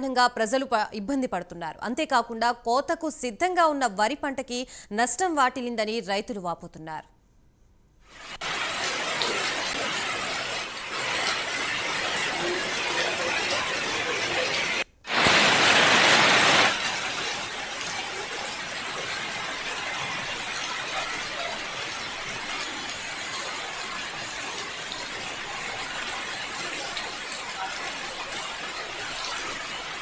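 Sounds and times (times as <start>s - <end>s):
heavy rain hissing: 8.1s - 30.0s.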